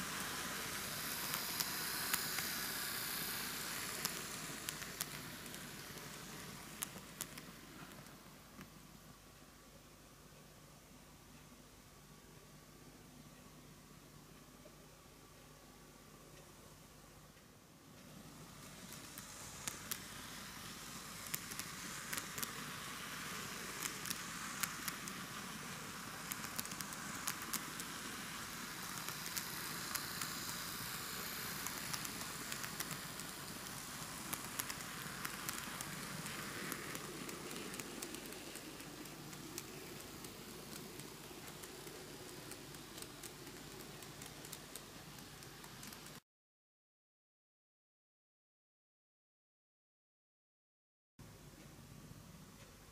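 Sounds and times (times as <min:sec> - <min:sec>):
model train motor whir: 0:00.0 - 0:08.0, 0:18.3 - 0:46.2
wheels clicking over track: 0:18.8 - 0:46.2.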